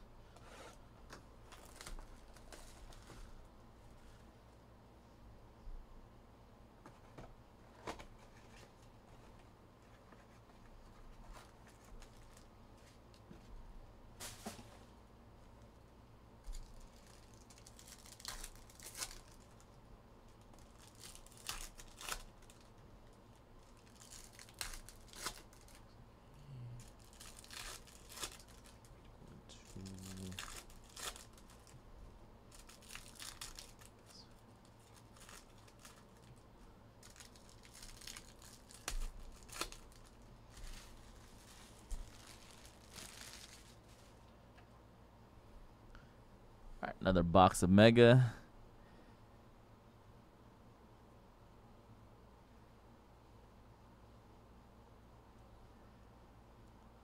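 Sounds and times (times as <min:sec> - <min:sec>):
foil wrappers tearing and crinkling: 0:01.5 - 0:03.1, 0:11.4 - 0:12.5, 0:16.5 - 0:19.8, 0:20.4 - 0:25.8, 0:26.8 - 0:29.0, 0:29.6 - 0:31.8, 0:32.5 - 0:36.4, 0:37.0 - 0:44.2.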